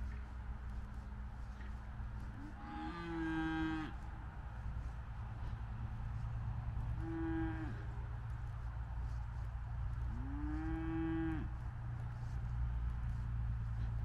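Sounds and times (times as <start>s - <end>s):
farm animal mooing: 2.3s - 4.0s, 6.9s - 8.0s, 10.1s - 11.6s.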